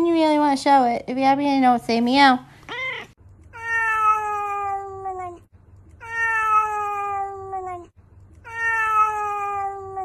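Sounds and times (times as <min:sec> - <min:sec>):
cat meowing: 0:02.7 - 0:10.0.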